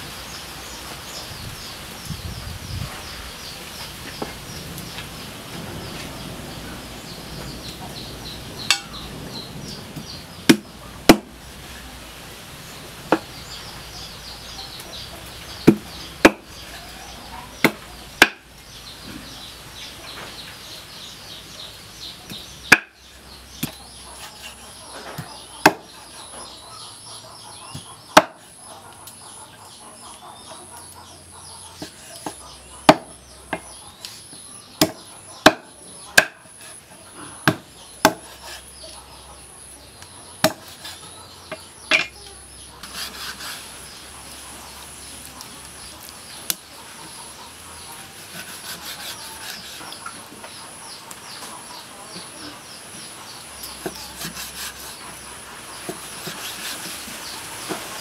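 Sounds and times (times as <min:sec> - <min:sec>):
cleaver chopping on wooden board: 0:10.5 - 0:11.3, 0:17.6 - 0:18.4, 0:22.7 - 0:23.0, 0:25.6 - 0:25.9, 0:31.8 - 0:33.7, 0:34.8 - 0:36.4, 0:37.4 - 0:38.4, 0:40.4 - 0:40.8.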